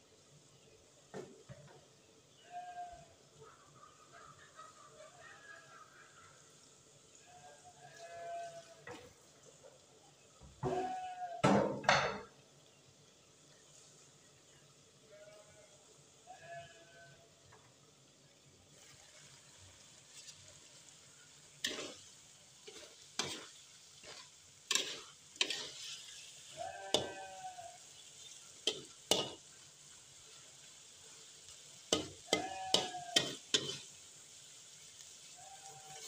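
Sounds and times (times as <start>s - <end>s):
faint sizzle: 0.0s - 36.0s
metal spatula scraping wok: 20.0s - 29.6s, 31.6s - 34.0s.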